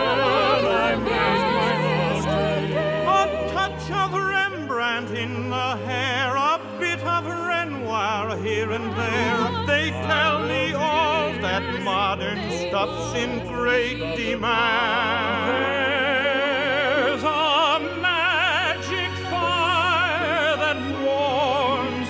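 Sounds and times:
operatic singing: 0.0 - 22.0.

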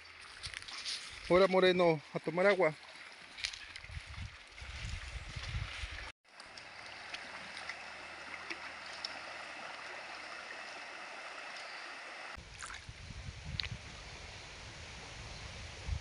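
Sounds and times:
faint small splashes: 2.7 - 12.9
wind buffeting microphone: 3.7 - 6.1, 12.4 - 16.0
river water rushing: 6.3 - 12.4.

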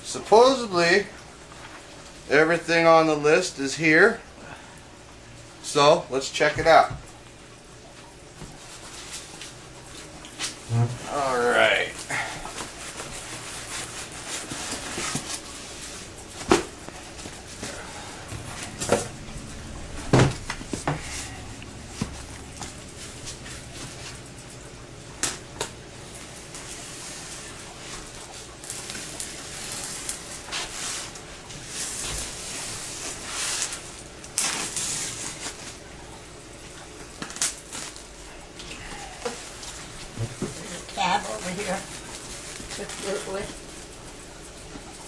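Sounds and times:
cardboard rustling and scraping: 12.5 - 19.2
packing tape scraping and tearing: 28.6 - 35.8, 37.2 - 38.1.

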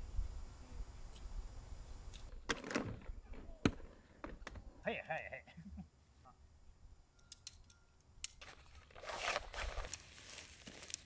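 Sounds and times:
tent fabric rustling: 8.4 - 11.0.

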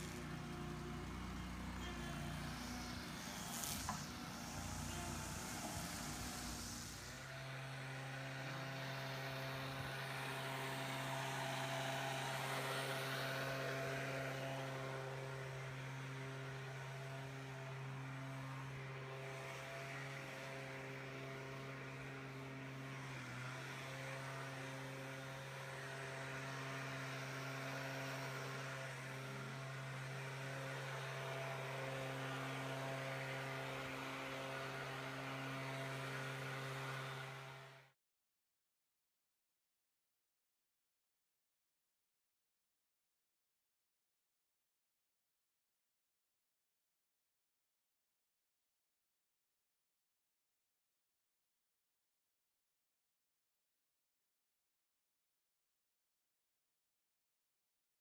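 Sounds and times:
small engine droning: 0.0 - 38.0.

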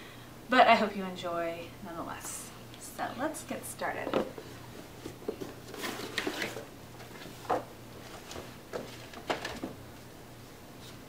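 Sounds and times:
cardboard scraping and rustling: 5.0 - 9.8.

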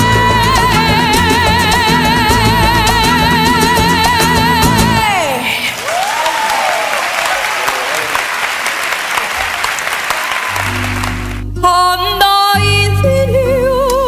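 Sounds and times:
audience applauding: 5.0 - 11.4.

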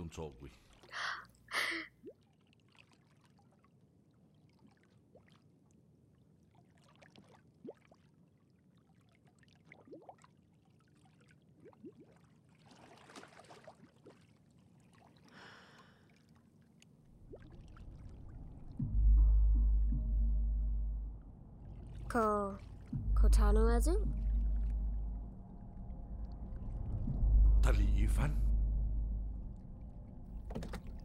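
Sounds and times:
water swishes: 0.0 - 1.2, 2.0 - 18.8, 23.8 - 27.3
water drips and trickles: 6.6 - 15.3, 16.1 - 18.8
low water swell: 17.1 - 30.4.

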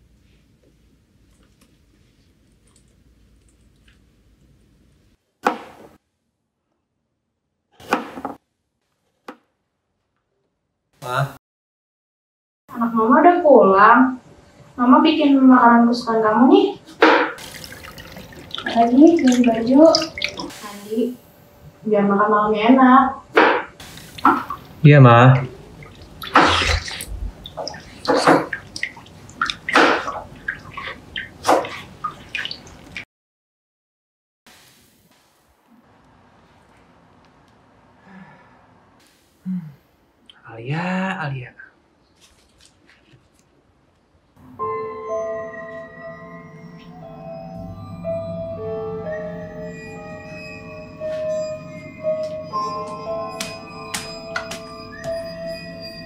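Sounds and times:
small wet clicks: 17.6 - 20.5, 25.9 - 33.0.

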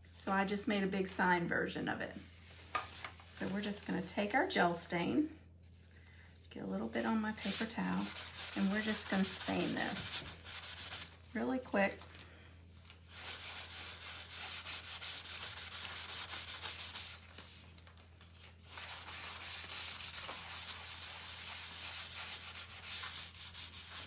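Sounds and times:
paper towel scrubbing wood: 7.4 - 11.2, 13.1 - 17.6, 18.7 - 24.0.

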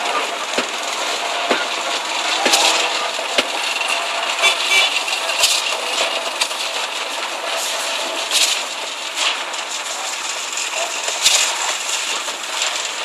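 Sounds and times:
machinery running: 0.0 - 13.0.

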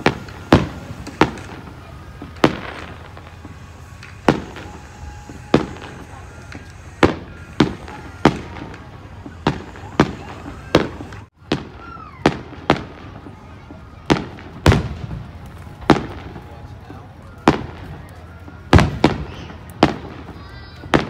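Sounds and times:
firework shells bursting: 0.0 - 16.8.

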